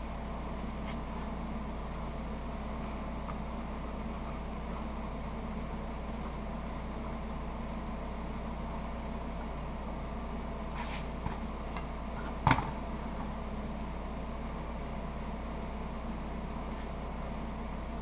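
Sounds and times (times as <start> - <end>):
machine hum: 0.0 - 18.0.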